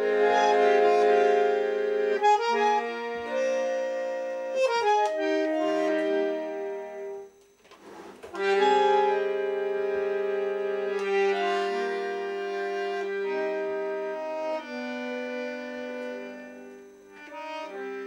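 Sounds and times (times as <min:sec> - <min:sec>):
bandoneon chords: 0:00.0 - 0:07.5, 0:08.2 - 0:18.0.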